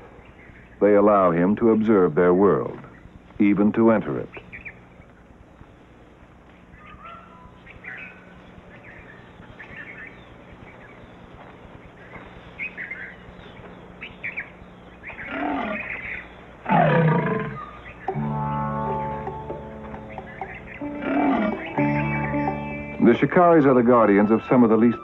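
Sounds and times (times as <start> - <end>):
birds chirping: 0.0 - 25.0
lioness snarling: 15.2 - 15.9, 16.6 - 17.8, 21.0 - 21.6
music with held notes: 18.0 - 23.8.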